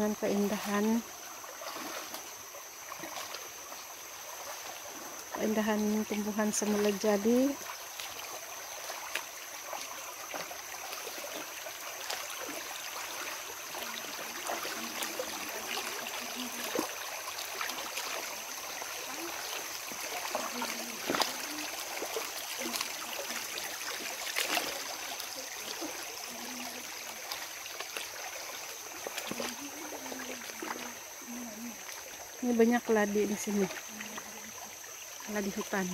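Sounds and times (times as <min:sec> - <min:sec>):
people wading through water: 0:00.0 - 0:35.9
rocky stream running: 0:00.0 - 0:35.9
sharp splashes: 0:00.6 - 0:03.5, 0:06.6 - 0:32.0.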